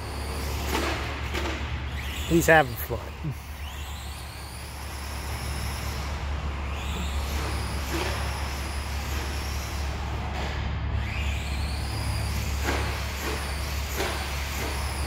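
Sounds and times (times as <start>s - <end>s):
electric motor whining: 1.8s - 10.3s.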